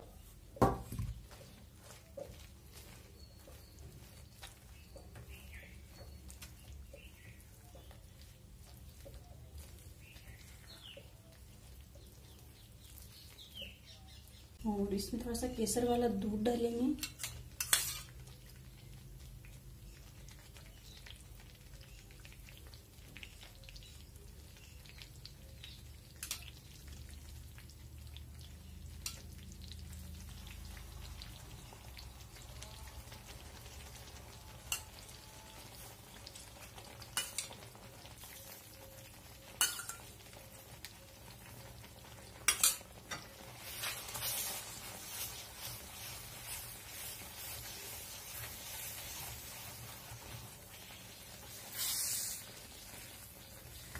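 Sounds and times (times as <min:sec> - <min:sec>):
flour sizzling in a pan: 0:00.0 - 0:53.9
metal spoon stirring in pan: 0:17.0 - 0:18.4, 0:26.2 - 0:26.6, 0:28.9 - 0:29.4, 0:34.5 - 0:40.7, 0:41.4 - 0:53.9.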